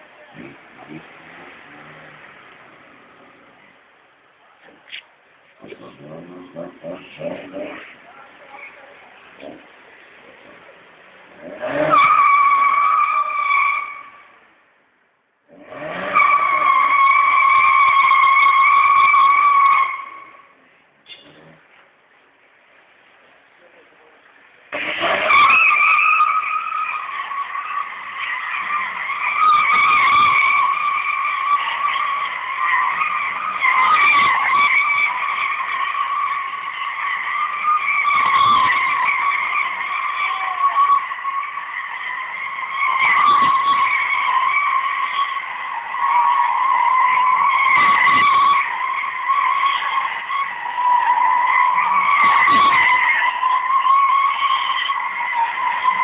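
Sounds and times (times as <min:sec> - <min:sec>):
tyres squealing in a skid: 0:00.0 - 0:03.9, 0:04.6 - 0:14.5, 0:15.5 - 0:21.8, 0:24.7 - 0:56.0.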